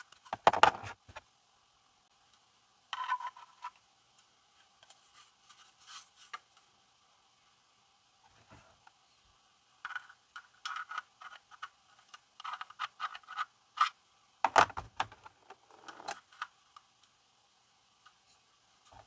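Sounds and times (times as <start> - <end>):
plastic pegs scraping and clicking: 9.8 - 17.1.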